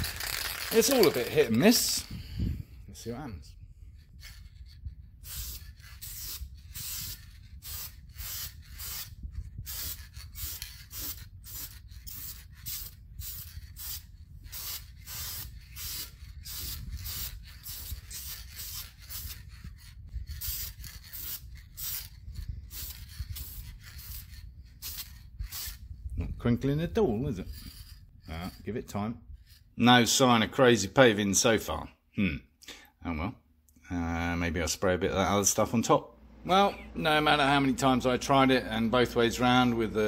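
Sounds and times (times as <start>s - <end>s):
spray paint can hissing: 0.0s - 1.2s, 5.2s - 25.8s.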